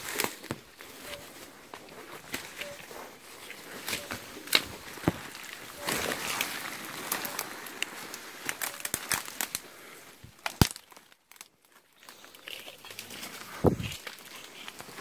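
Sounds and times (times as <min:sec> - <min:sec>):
twigs snapping: 0:00.0 - 0:00.6, 0:03.4 - 0:09.7, 0:10.3 - 0:15.0
footsteps through dry undergrowth: 0:00.0 - 0:10.0, 0:10.6 - 0:15.0
leaves rustling: 0:00.0 - 0:15.0.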